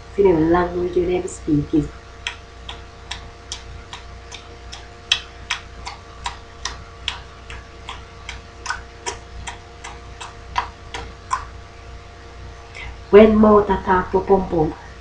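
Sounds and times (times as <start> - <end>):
person clicking tongue: 2.2 - 11.6.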